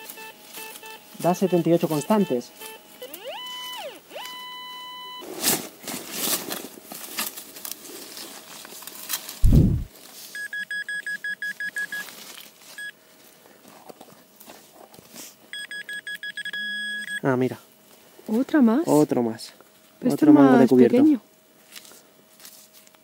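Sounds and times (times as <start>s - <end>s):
metal detector beeping: 0.0s - 5.2s, 9.4s - 12.1s, 15.5s - 17.2s
metal detector steady tone: 0.0s - 5.2s, 15.5s - 17.2s
heavy thump: 9.4s - 9.9s.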